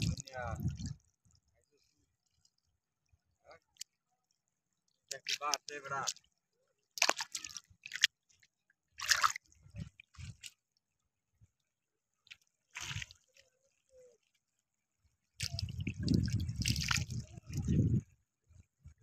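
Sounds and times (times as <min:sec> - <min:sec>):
water dripping and splashing: 0:00.0 - 0:01.4, 0:05.0 - 0:06.3, 0:06.9 - 0:08.4, 0:09.0 - 0:10.6, 0:12.2 - 0:13.5, 0:15.3 - 0:18.0
feet wading through water: 0:06.9 - 0:10.8, 0:12.2 - 0:18.0.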